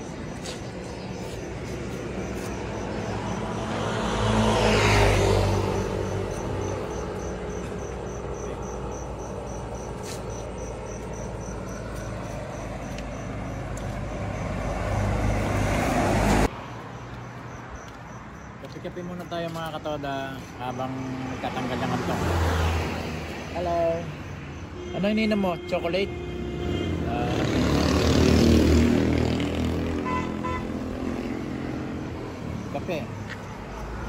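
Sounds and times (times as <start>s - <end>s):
vehicle approaching: 0.0s - 17.9s, 27.0s - 34.0s
vehicle passing: 0.0s - 18.3s, 19.4s - 24.7s, 26.4s - 34.0s
crickets chirping: 0.0s - 34.0s.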